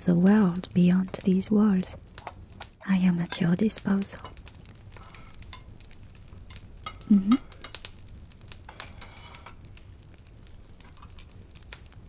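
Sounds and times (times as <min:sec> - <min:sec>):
light crackle: 0:00.0 - 0:12.0
woman humming: 0:07.0 - 0:07.6.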